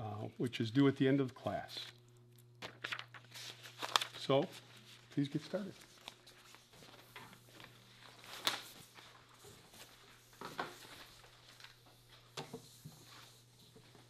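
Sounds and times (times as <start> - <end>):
low steady hum: 0.0 - 14.0
paper and pencil rustles: 2.6 - 14.0.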